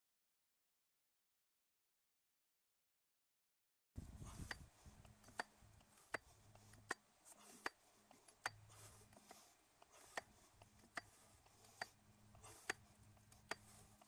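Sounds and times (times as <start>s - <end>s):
hydraulic hand pump clicks: 4.4s - 7.0s, 7.6s - 13.7s.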